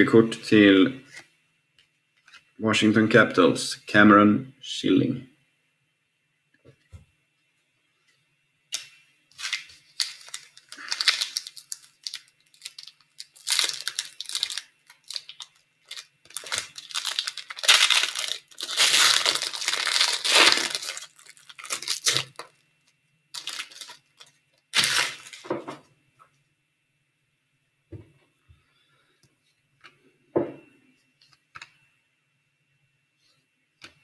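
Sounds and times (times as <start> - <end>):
foil wrapper tearing and crinkling: 8.8 - 22.5, 23.3 - 25.5.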